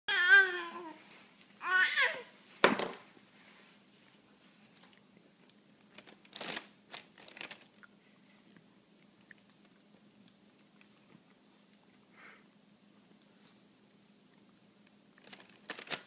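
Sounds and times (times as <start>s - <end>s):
plastic snack bag crackling: 5.9s - 7.9s, 15.2s - 16.0s.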